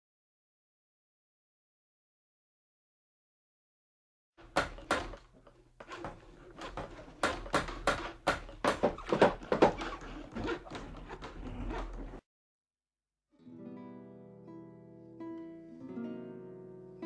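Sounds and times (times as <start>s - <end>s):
sharp knocks and taps: 4.4s - 12.1s.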